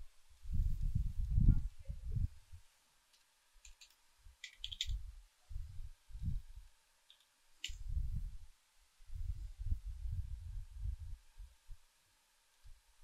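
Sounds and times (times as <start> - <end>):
keyboard keys clicking: 3.6 - 5.0.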